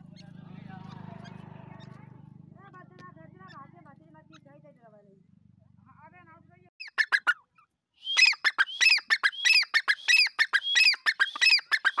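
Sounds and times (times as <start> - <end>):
francolin calling: 8.0 - 12.0.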